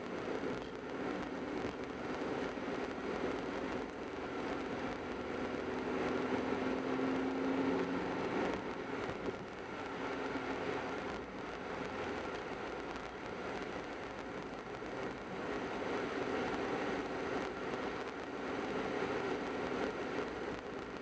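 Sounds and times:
car engine and tyre noise: 0:00.0 - 0:21.0.

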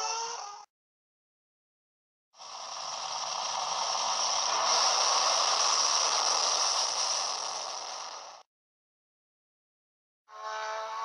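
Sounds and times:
dragster engine at full throttle: 0:02.4 - 0:08.4.

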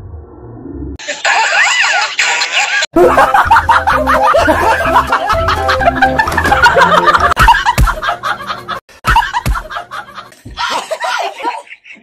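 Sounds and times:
men laughing loudly: 0:01.0 - 0:12.0
background music: 0:02.9 - 0:10.6.

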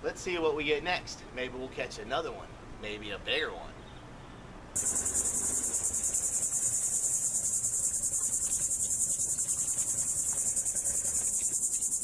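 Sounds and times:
high-pitched insect chorus trilling: 0:04.8 - 0:12.0.

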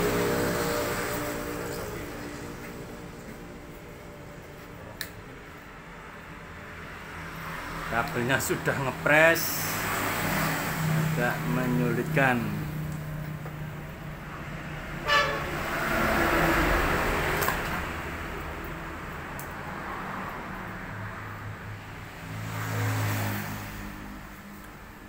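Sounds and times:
vehicles passing: 0:00.0 - 0:25.0
short horn toot: 0:15.0 - 0:15.6.

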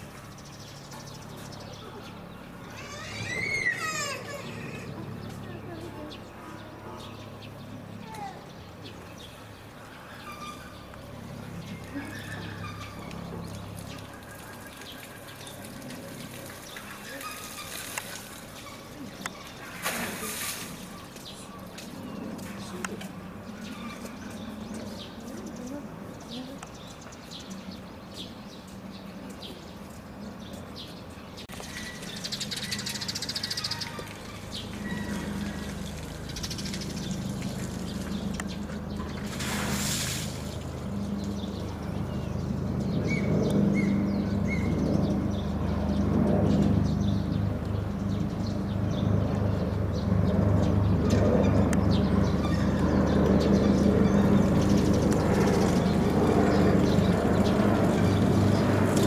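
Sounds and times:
low machine hum: 0:31.6 - 0:59.0.

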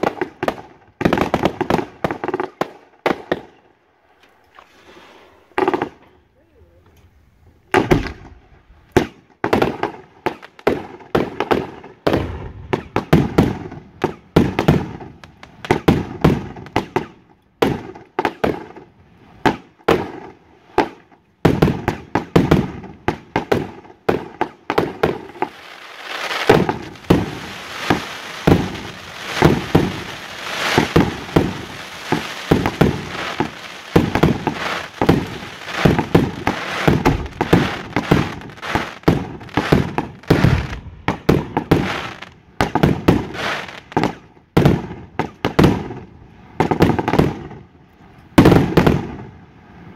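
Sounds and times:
fireworks bangs: 0:00.0 - 0:03.6, 0:05.5 - 0:06.2, 0:07.6 - 0:47.7, 0:48.4 - 0:49.4
steady hiss: 0:25.0 - 0:41.0, 0:43.2 - 0:44.0.

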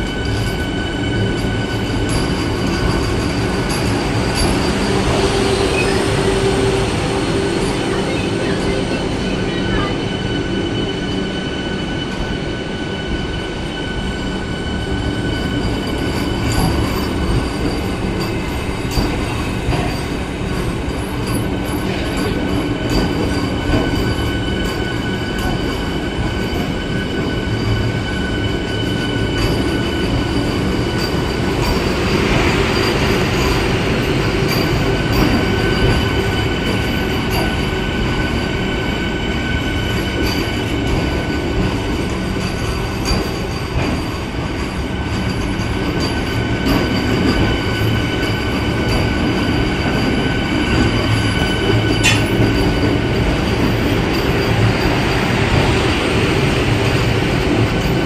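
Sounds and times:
train wheels rumbling: 0:00.0 - 0:58.0.

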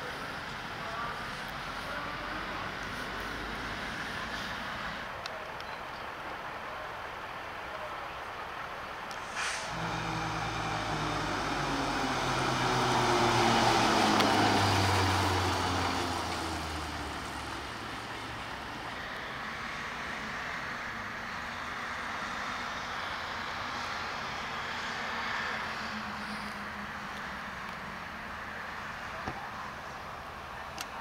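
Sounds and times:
distant vehicle: 0:00.0 - 0:31.0
diesel truck engine passing: 0:09.1 - 0:28.9.

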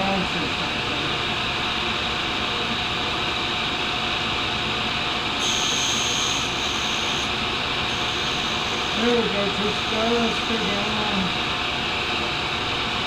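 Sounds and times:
high hiss of carbide on grinding wheel: 0:05.4 - 0:11.0
tool grinder running: 0:05.4 - 0:11.6.

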